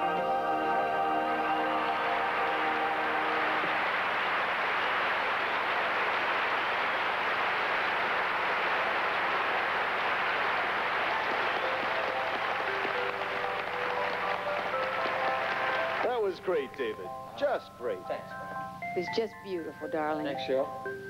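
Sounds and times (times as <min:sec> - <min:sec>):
song held notes: 0:00.0 - 0:04.2, 0:11.3 - 0:21.0
audience applauding: 0:00.0 - 0:17.0.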